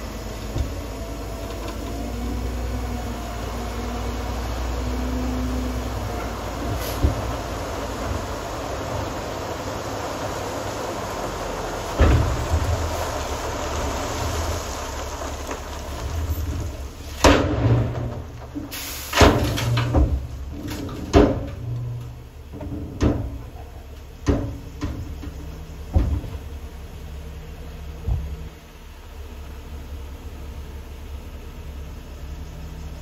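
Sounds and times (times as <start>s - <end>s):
diesel truck engine running: 0.0s - 33.0s
gravel sliding: 0.0s - 33.0s
loud metallic bangs of dump body: 11.8s - 13.2s, 16.2s - 26.6s.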